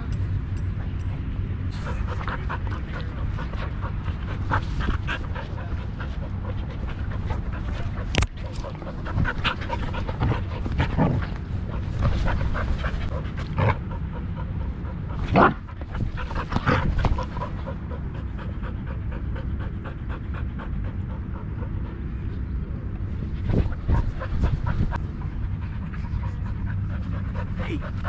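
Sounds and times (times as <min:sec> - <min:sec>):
rustles and bumps: 0:00.8 - 0:14.0
dog panting: 0:01.6 - 0:28.0.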